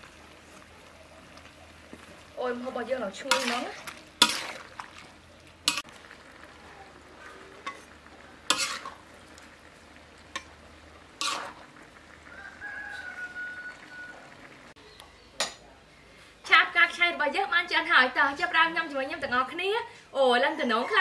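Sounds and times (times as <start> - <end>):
faint frying sizzle: 0.0 - 21.0
metal spatula scraping a wok: 3.1 - 5.9, 7.2 - 9.1, 10.3 - 11.7
rooster crowing: 12.2 - 14.5.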